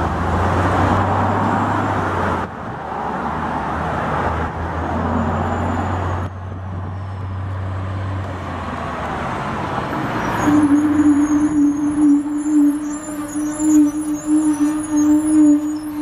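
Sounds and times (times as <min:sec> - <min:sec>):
passing traffic: 0:00.0 - 0:16.0
diesel truck engine humming: 0:08.7 - 0:16.0.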